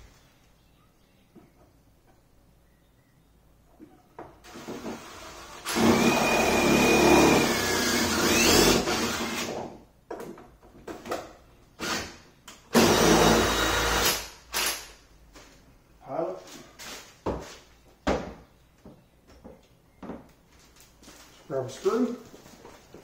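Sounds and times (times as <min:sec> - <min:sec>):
cordless drill whining: 0:04.5 - 0:09.6, 0:12.8 - 0:14.2.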